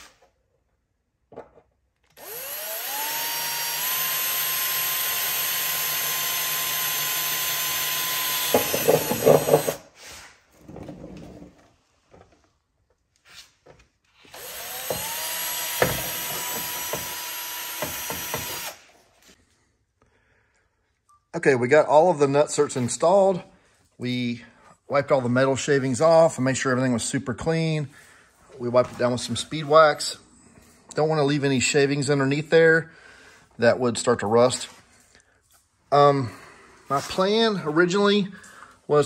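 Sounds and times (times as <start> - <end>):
cordless drill whining: 2.1 - 9.9, 14.2 - 19.0
drill bit chattering through metal: 2.2 - 9.8.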